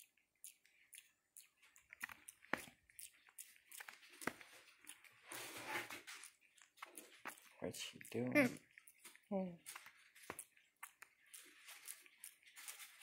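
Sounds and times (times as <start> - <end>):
fingers scratching through fur: 3.7 - 6.4.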